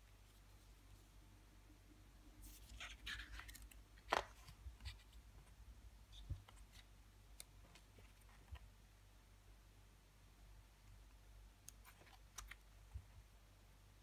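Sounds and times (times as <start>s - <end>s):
paper pages rustling: 2.4s - 5.2s.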